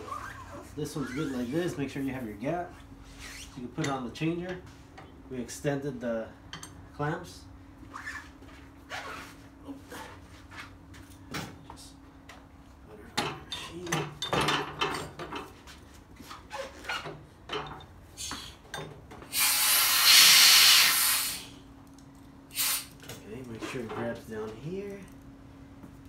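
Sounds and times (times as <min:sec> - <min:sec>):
loud air hiss: 0:19.3 - 0:21.6, 0:22.5 - 0:23.0.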